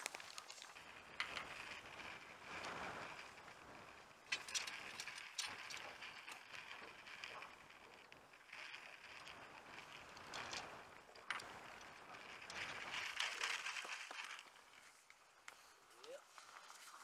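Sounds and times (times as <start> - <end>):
gear clicking and knocking: 4.2 - 14.7.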